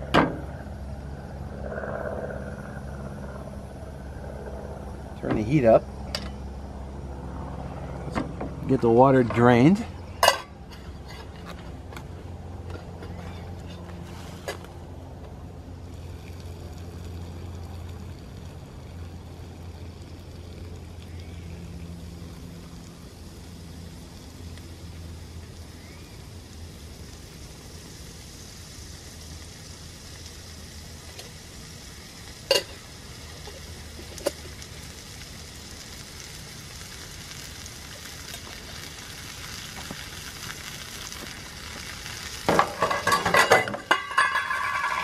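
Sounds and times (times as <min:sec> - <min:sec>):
meat sizzling in a wok: 0:15.8 - 0:45.0
metal pot clatter: 0:42.5 - 0:45.0.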